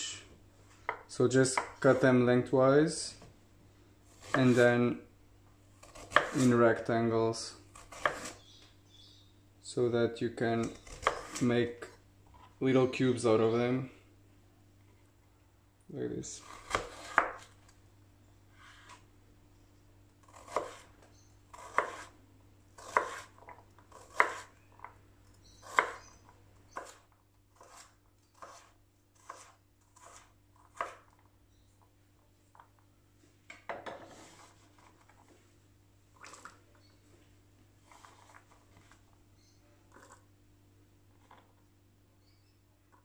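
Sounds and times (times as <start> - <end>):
knife scraping board: 4.2 - 4.8, 5.8 - 6.6, 7.8 - 8.4, 21.6 - 22.1, 22.8 - 24.5, 27.6 - 31.0, 34.0 - 35.0, 37.8 - 38.6
knife chopping on wooden board: 5.8 - 6.5, 7.8 - 8.4, 10.8 - 11.4, 16.5 - 17.5, 20.3 - 20.9, 21.6 - 22.1, 22.8 - 23.3, 23.9 - 24.5, 25.6 - 26.1.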